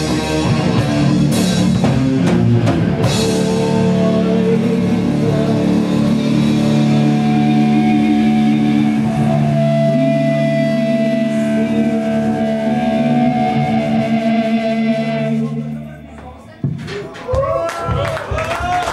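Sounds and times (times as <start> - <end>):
distorted guitars and bass: 0.0 - 16.8
woman singing a long note: 3.3 - 15.9.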